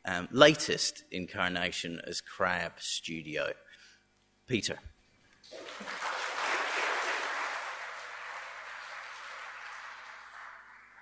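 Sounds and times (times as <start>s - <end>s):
audience applauding: 5.5s - 11.0s.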